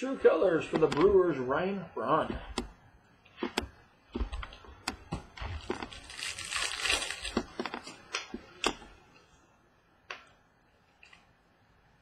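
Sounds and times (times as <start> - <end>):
cards rustling: 5.4 - 8.8.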